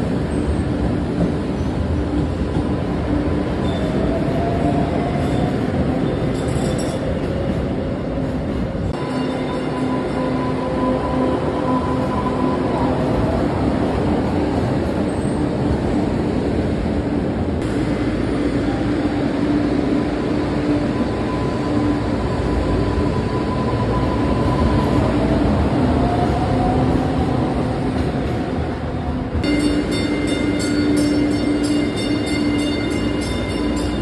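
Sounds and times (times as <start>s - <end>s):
wheels rumbling on rail: 0.0s - 34.0s.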